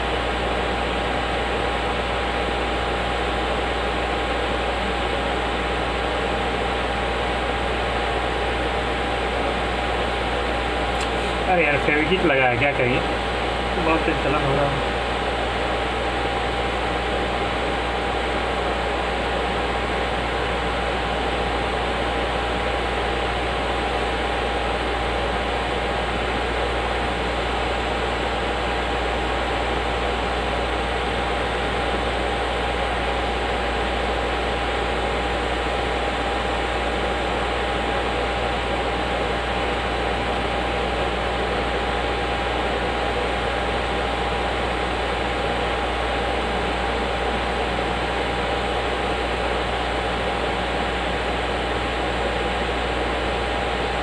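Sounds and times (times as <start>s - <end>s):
hot air nozzle blowing with whine: 10.7s - 11.6s.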